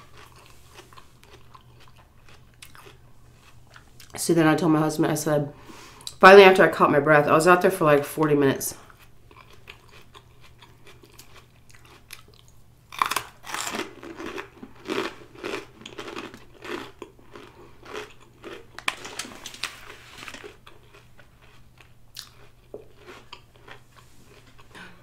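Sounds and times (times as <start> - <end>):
person chewing crunchy food: 0.0 - 4.2, 8.8 - 25.0.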